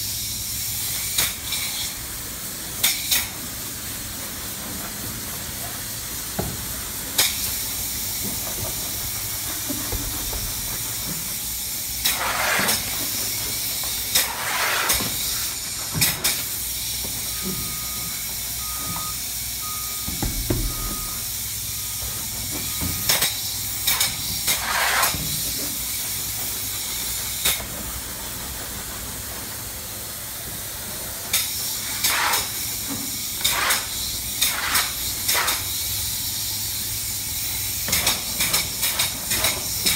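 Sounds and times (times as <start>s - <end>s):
spray foam gun hissing: 0.0s - 17.2s
short beeps: 17.3s - 23.2s.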